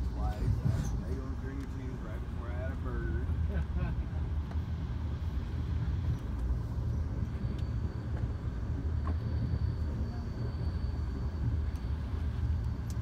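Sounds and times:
train rumble from inside car: 0.0s - 13.0s
faint high whine: 4.7s - 13.0s.

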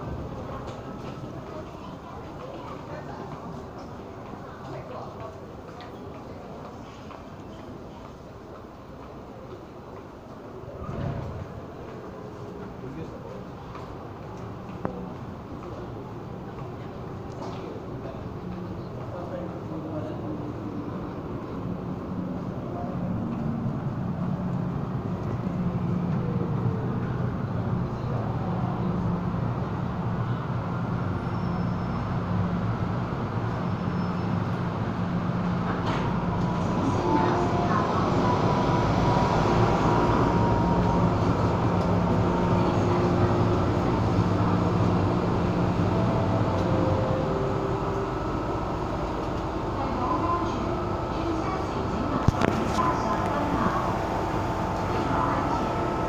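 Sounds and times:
electric train humming: 34.3s - 56.0s.

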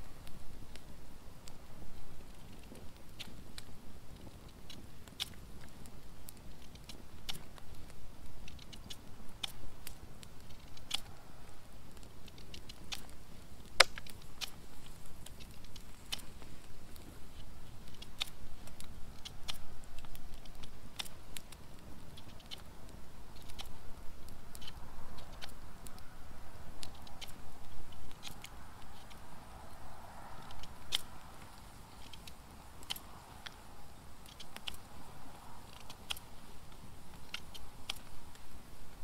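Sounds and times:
low steady rustle: 0.0s - 39.0s
sharp clicks and pops: 2.2s - 38.8s.

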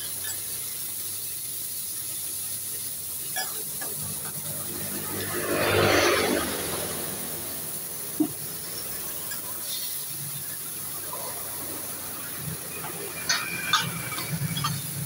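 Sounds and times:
vegetables sizzling on griddle: 0.0s - 15.0s
metal spatula clacking on plate: 12.8s - 15.0s.

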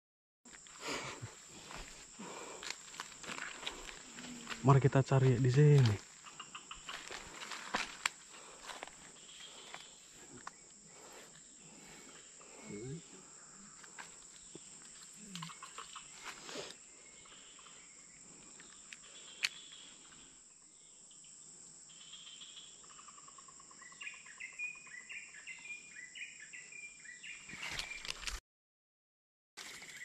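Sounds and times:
insect drone: 0.5s - 28.3s
bird chirping: 3.7s - 7.4s, 9.0s - 28.3s.

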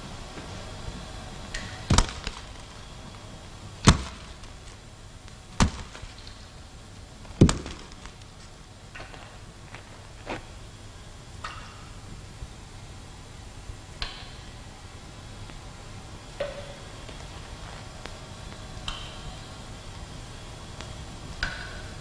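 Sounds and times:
faint steady hiss: 0.0s - 22.0s
potatoes thudding on wooden boards: 1.6s - 3.2s, 3.8s - 4.9s, 5.6s - 6.6s, 7.2s - 9.2s.

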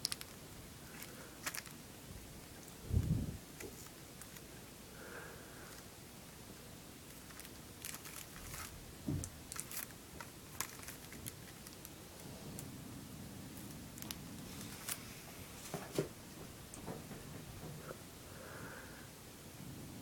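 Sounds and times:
small plastic clicks: 0.0s - 1.8s
cellophane wrap crinkling: 0.0s - 4.6s, 7.0s - 12.3s, 13.6s - 15.0s
cardboard rustling: 0.9s - 1.8s, 7.1s - 11.9s.

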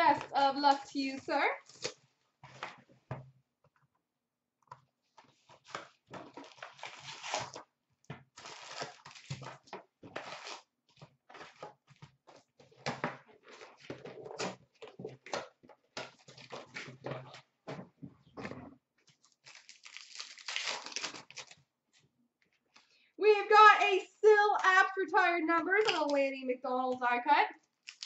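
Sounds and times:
cardboard and wrappers rustling: 5.0s - 22.9s.

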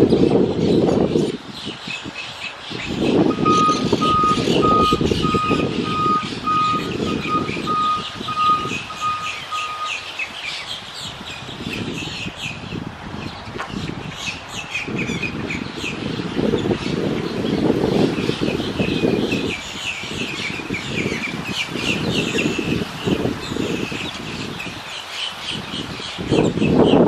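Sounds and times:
parakeets chattering: 2.5s - 12.2s
reversing alarm beeping: 3.3s - 10.0s.

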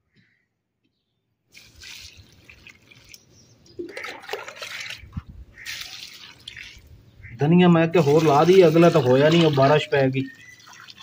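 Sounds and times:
water pouring onto soil: 1.5s - 7.0s, 7.9s - 11.0s
water sloshing and splashing: 1.5s - 7.1s, 7.9s - 11.0s.

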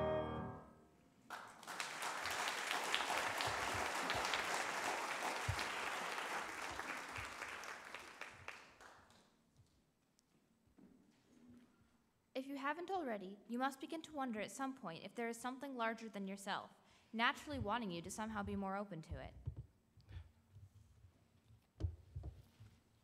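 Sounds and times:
audience applause: 1.3s - 9.1s.

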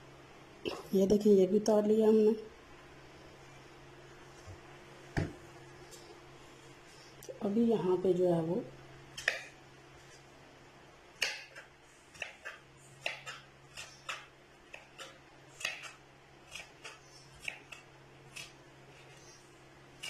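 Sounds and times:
knife chopping on wooden board: 11.2s - 17.8s.

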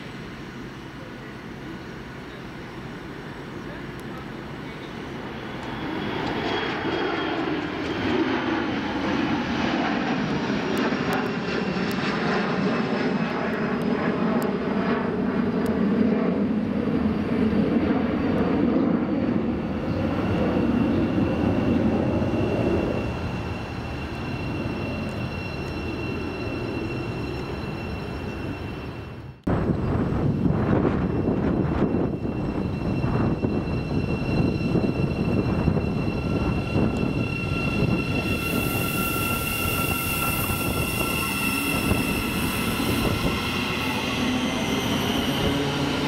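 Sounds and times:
jet engine whine: 0.0s - 46.0s
jet engines rumbling: 0.0s - 46.0s.

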